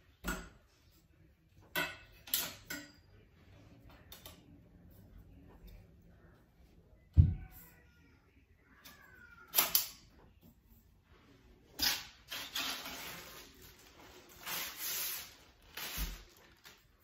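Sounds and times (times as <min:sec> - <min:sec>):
metal frame scrapes and rustles: 0:11.1 - 0:16.4.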